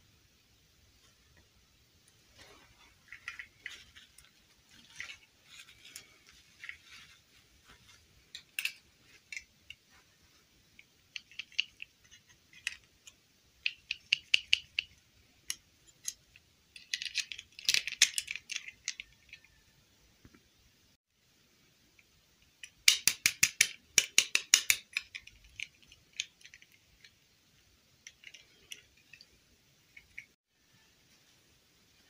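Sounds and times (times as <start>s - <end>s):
plastic dolls clicking and tapping: 10.7s - 20.4s, 22.4s - 30.4s.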